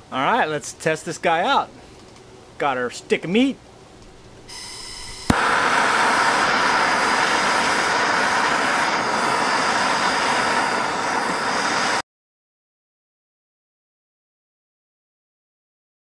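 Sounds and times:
gas hissing: 4.0s - 12.0s
torch flame hissing: 4.5s - 12.0s.

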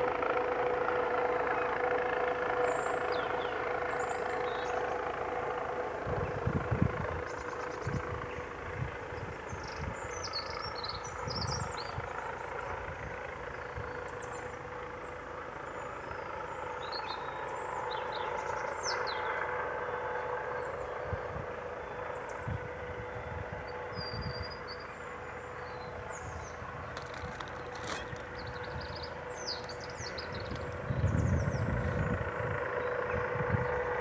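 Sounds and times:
steady mechanical hum: 0.0s - 34.0s
wind buffeting microphone: 5.9s - 14.7s, 21.0s - 21.6s, 22.2s - 24.9s, 25.8s - 34.0s
small birds chirping: 9.2s - 12.6s, 23.2s - 33.9s.

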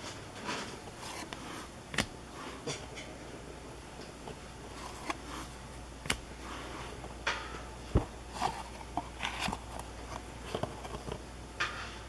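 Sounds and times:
cardboard cards being flipped: 0.5s - 2.2s, 4.7s - 7.1s, 7.9s - 11.2s.

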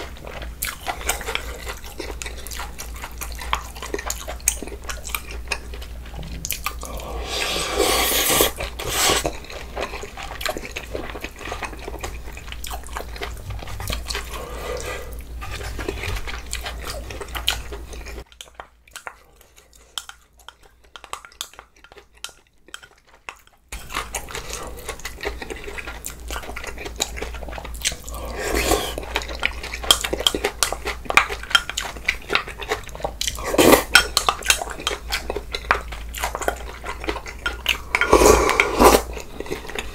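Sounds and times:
chewing: 0.0s - 39.9s
slurping: 6.4s - 18.2s, 27.0s - 30.3s, 33.2s - 34.0s, 37.4s - 39.9s.

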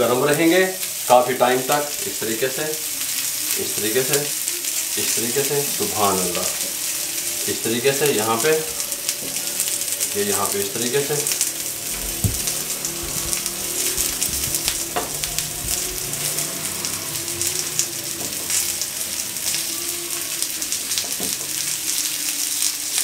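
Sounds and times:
meat sizzling on hot platter: 0.0s - 23.0s
light knocks: 11.9s - 16.0s.

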